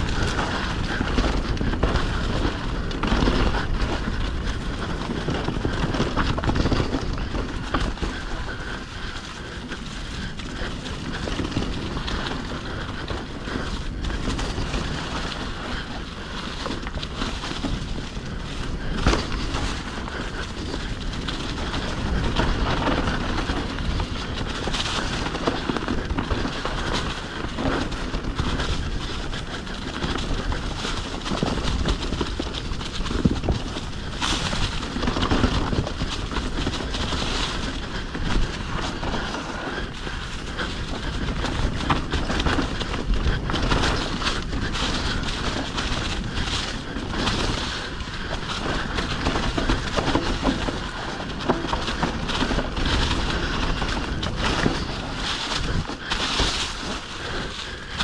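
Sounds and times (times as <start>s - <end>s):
wind on camera: 0.0s - 8.5s
bike chain rattling: 0.0s - 58.0s
bike tyres rumbling on dirt: 0.0s - 58.0s.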